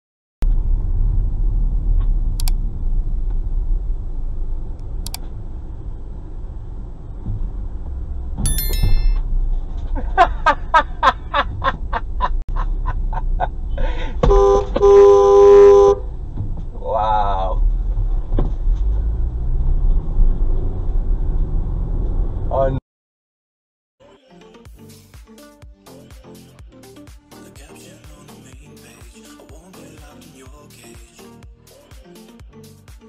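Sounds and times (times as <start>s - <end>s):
car engine and road rumble: 0.4s - 8.4s, 9.2s - 22.8s
short high beep: 8.5s - 9.2s
car horn honking: 14.2s - 16.0s.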